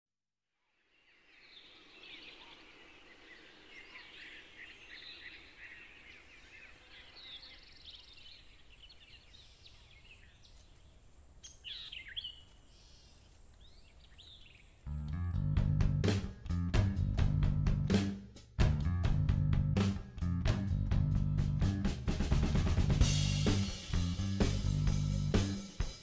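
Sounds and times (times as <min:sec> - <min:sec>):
small birds chirping: 0:00.8 - 0:15.2.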